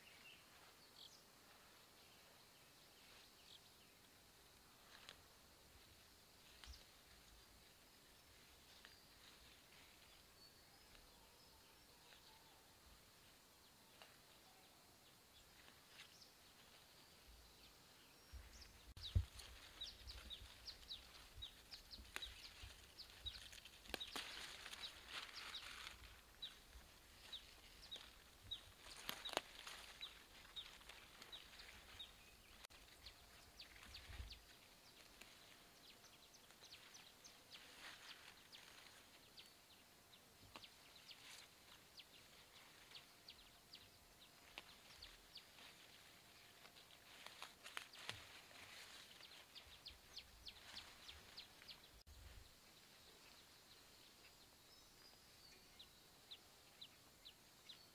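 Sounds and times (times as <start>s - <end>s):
rustling and snapping of leafy plants: 4.5s - 5.4s, 6.4s - 7.6s, 8.3s - 10.1s, 13.8s - 14.5s, 19.0s - 39.4s, 40.4s - 43.1s, 44.3s - 52.0s.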